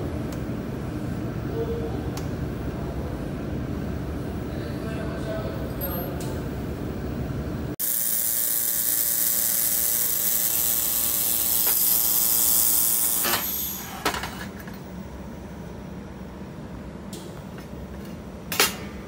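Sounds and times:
laser welder buzzing hiss: 7.8 - 14.2.

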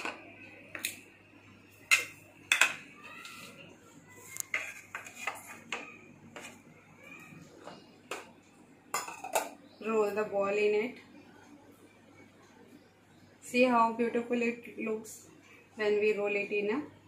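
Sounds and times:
bowls knocking and clinking: 7.6 - 9.6.

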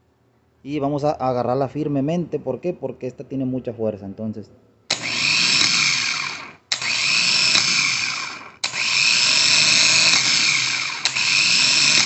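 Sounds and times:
starter motor spinning: 4.9 - 12.0.

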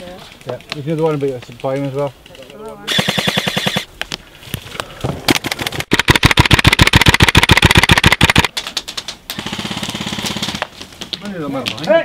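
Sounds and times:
airsoft rifle firing: 2.9 - 3.9, 5.4 - 8.5.

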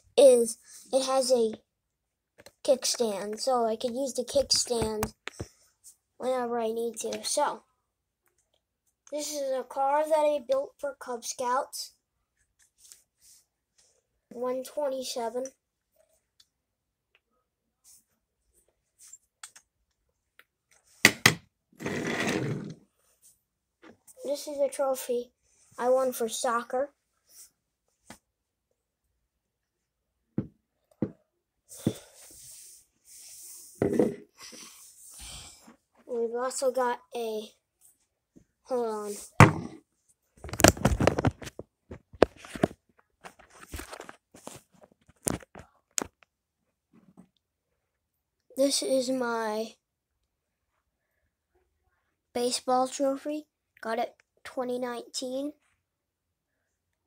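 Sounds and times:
plastic wheels rolling on desk: 21.8 - 22.8.

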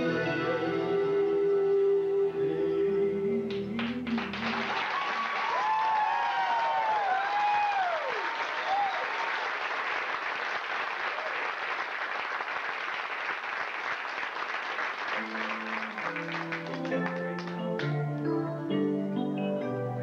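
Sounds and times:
audience applauding: 3.5 - 18.0
held instrumental notes: 15.2 - 20.0.

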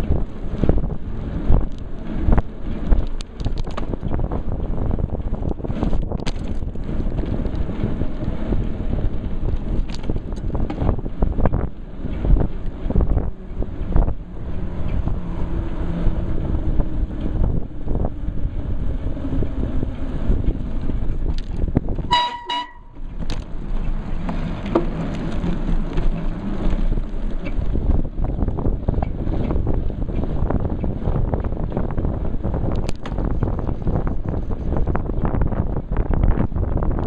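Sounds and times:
wind buffeting: 0.0 - 37.0
rattling knocks from bike: 2.3 - 7.6, 21.3 - 28.0
brief high tone: 22.1 - 23.0.

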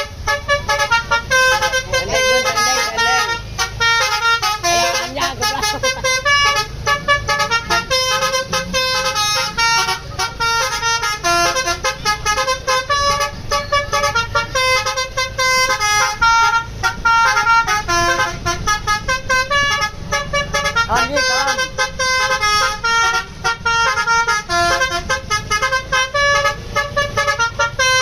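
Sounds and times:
musical bus horn playing tune: 0.0 - 28.0.

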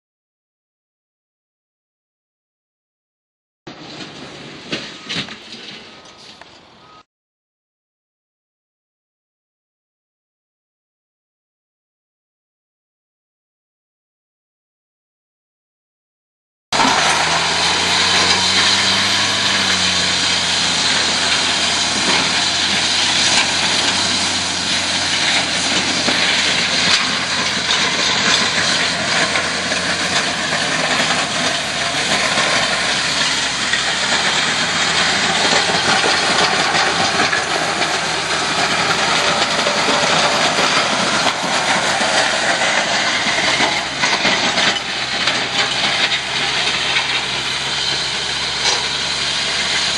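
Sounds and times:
plow blade pushing through dirt: 3.7 - 7.0, 16.8 - 49.9
truck engine running under load: 3.7 - 7.0, 16.8 - 49.9.

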